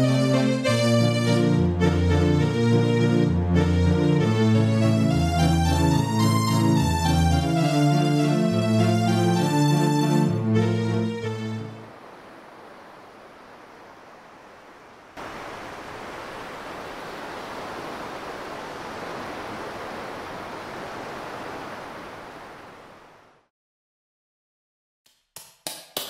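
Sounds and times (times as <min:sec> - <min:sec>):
surging waves: 0:11.2 - 0:23.5.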